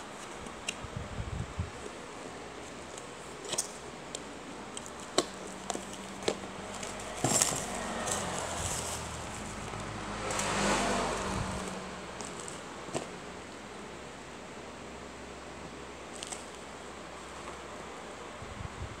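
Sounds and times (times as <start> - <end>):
packaging crinkling and rustling: 2.8 - 10.6, 16.1 - 16.6.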